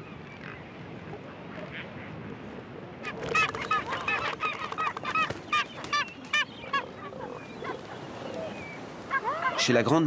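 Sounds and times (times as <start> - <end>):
gull calling: 3.0 - 9.8.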